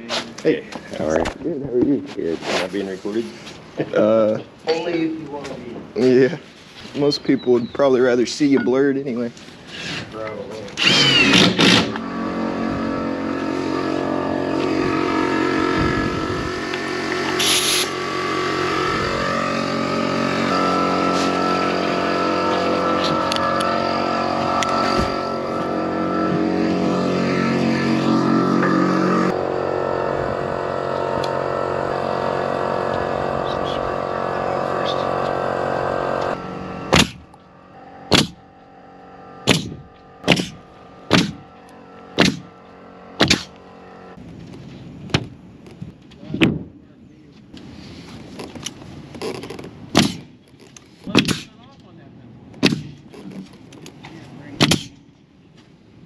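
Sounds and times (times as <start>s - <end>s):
loud drone of held tones: 10.7s - 44.6s
pneumatic nail gun firing: 10.8s - 12.1s, 16.7s - 18.2s, 36.9s - 37.3s, 38.1s - 38.5s, 39.4s - 41.4s, 42.2s - 42.6s, 43.2s - 43.6s, 49.9s - 50.3s, 51.0s - 51.6s, 52.6s - 53.1s, 54.6s - 55.0s.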